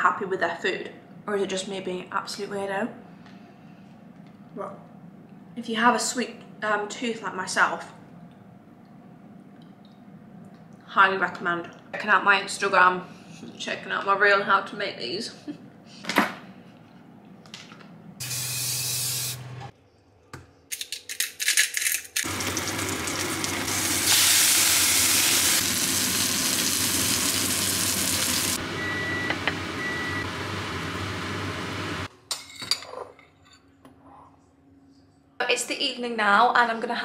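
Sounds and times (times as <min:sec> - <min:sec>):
fish sizzling in oil: 0:22.3 - 0:28.6.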